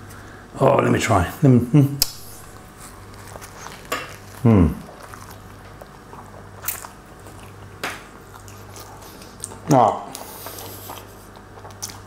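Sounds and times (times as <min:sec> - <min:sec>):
man chewing food: 0:02.0 - 0:12.0
mouth clicks and crunches: 0:02.0 - 0:12.0
man saying mmm: 0:04.4 - 0:04.9.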